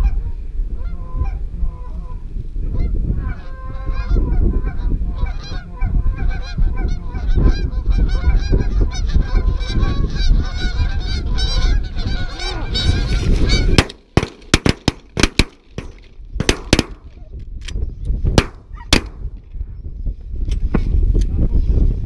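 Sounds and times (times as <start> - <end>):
wind rumbling on microphone: 0.0 - 22.0
geese honking: 2.8 - 13.9
shotgun shots: 13.8 - 17.2, 18.4 - 19.3.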